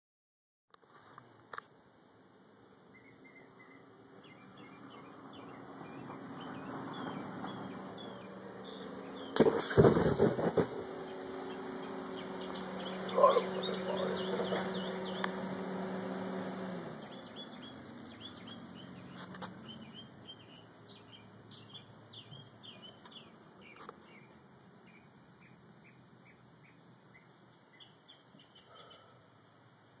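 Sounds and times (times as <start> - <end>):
small birds chirping: 2.9 - 29.6.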